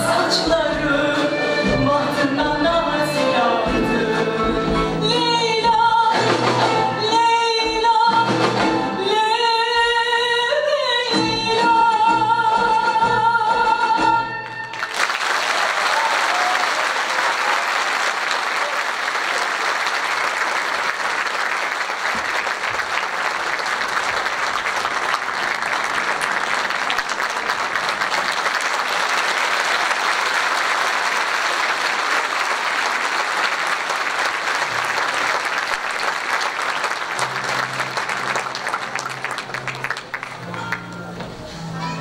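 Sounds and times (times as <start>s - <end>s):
audience applauding: 14.4s - 41.2s.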